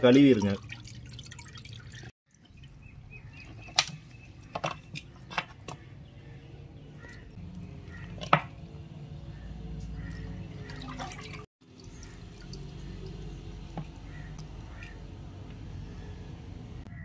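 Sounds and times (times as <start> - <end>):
water dripping and splashing: 0.0 - 5.7, 9.8 - 15.7.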